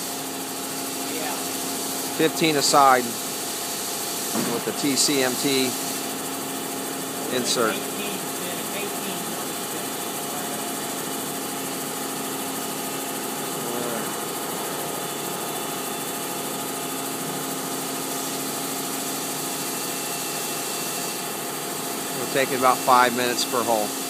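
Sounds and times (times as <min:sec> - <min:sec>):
machine hum with whining tones: 0:00.0 - 0:24.0.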